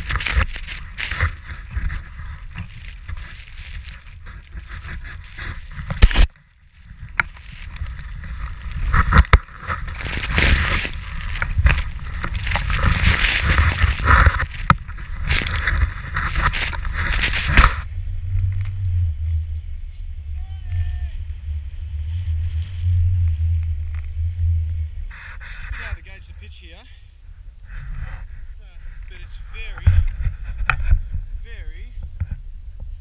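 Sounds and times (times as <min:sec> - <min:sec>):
skis ploughing through snow: 0:00.0 - 0:17.8
wind buffeting microphone: 0:00.0 - 0:20.2.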